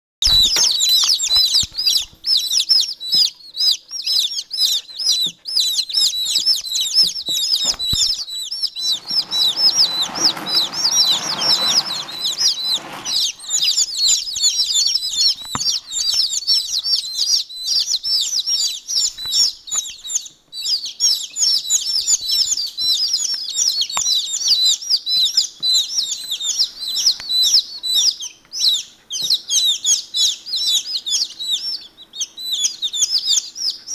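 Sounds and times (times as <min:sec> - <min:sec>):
chicks peeping: 0:00.2 - 0:33.9
rustling: 0:06.6 - 0:16.2.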